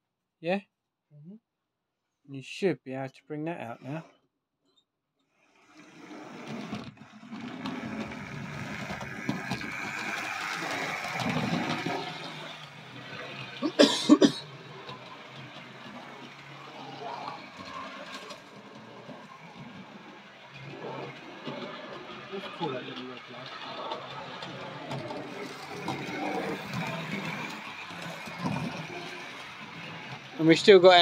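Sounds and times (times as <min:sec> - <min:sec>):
model train motor whirring: 0:05.4 - 0:31.0.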